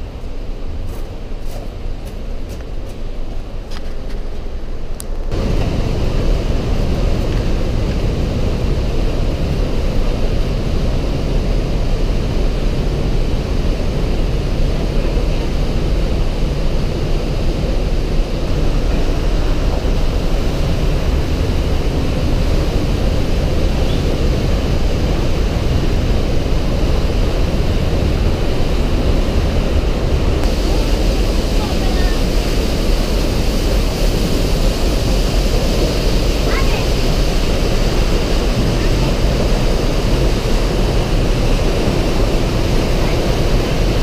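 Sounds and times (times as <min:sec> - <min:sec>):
river roaring through gorge: 0:00.0 - 0:44.0.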